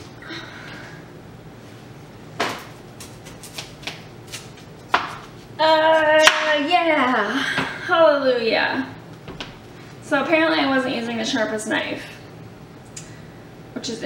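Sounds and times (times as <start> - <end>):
knife cutting squash on board: 3.0 - 5.4.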